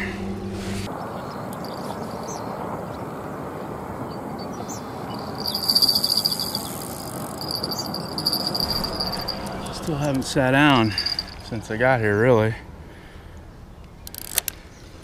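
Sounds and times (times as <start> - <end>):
insect trilling: 5.1 - 10.2.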